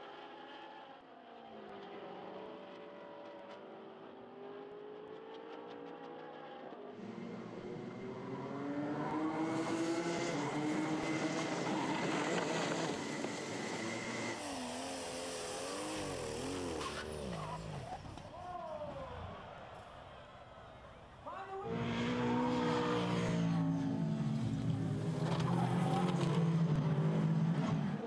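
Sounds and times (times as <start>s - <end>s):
racing kart engines: 0.0s - 28.0s
tractor engine revving: 7.0s - 18.2s
race car engine running: 7.0s - 18.4s.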